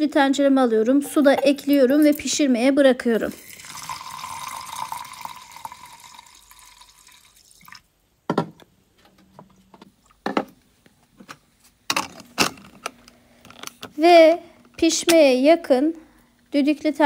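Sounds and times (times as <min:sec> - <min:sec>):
water pouring into metal pot: 0:03.3 - 0:07.8.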